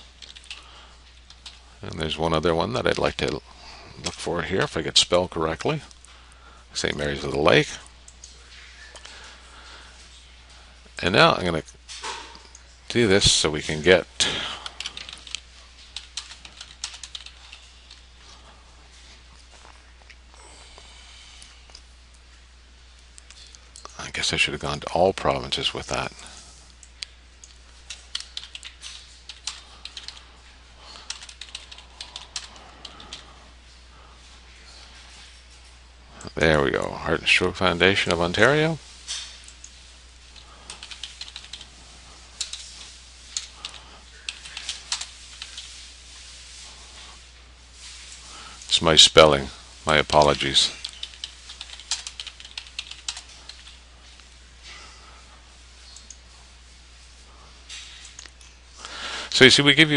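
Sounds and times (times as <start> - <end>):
computer keyboard typing: 0.2 - 1.6, 14.2 - 18.0, 26.8 - 30.2, 30.9 - 33.3, 40.4 - 41.7, 42.4 - 45.7, 50.1 - 53.8.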